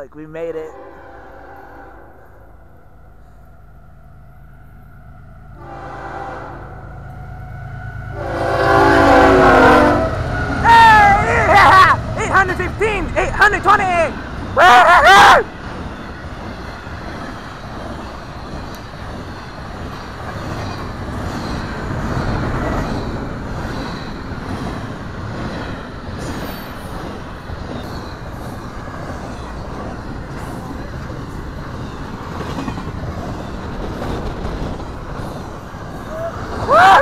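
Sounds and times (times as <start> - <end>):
freight train rolling past: 0.0 - 37.0
faint clicks: 18.7 - 18.9.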